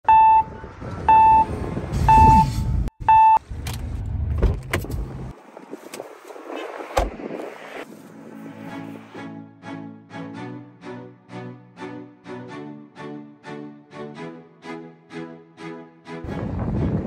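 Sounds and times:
car warning chime beeping: 0:00.0 - 0:01.5, 0:02.1 - 0:03.4.

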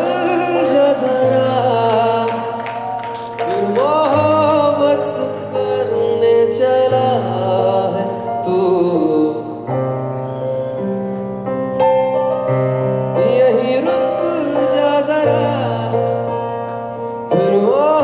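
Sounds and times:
piano chords: 0:00.0 - 0:18.0.

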